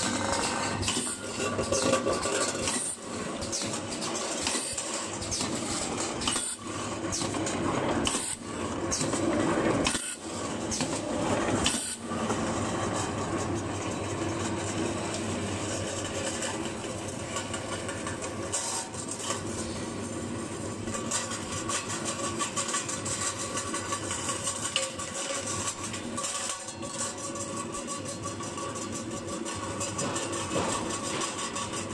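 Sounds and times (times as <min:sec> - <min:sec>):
can seaming machine clattering: 0:00.0 - 0:12.3.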